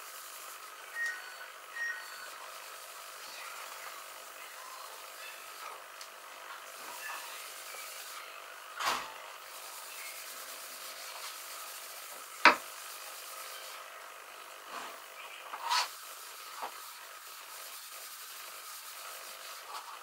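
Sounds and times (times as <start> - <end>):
scrape: 15.6 - 16.9.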